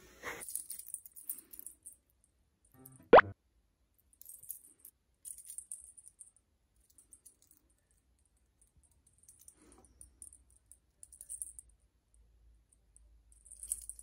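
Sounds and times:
metallic jingling of collar tag: 13.4 - 14.0.

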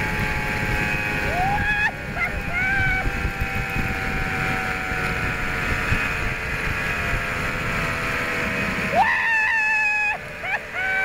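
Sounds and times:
wind rumble on microphone: 0.0 - 11.0
zipline pulleys whining on cable: 0.0 - 11.0
person whooping: 1.2 - 3.2, 8.9 - 11.0.

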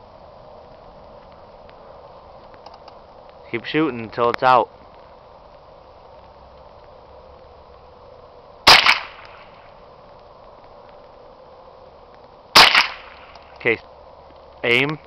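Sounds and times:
rifle shots: 8.6 - 9.6, 12.5 - 13.4.

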